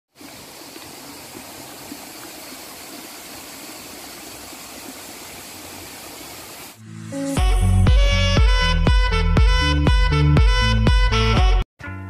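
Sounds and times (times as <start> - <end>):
stream rushing over stones: 0.1 - 6.8.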